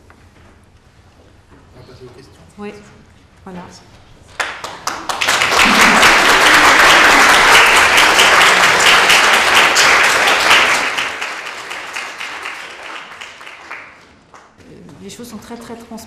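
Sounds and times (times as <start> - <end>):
audience applauding: 4.4 - 14.6.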